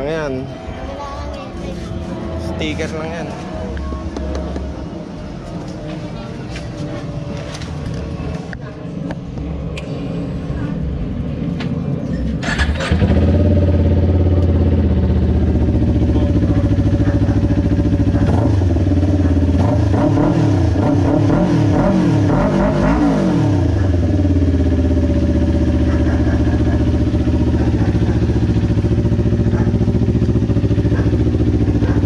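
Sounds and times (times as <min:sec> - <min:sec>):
motorcycle engine starting and idling: 0:12.2 - 0:20.8, 0:23.6 - 0:32.0.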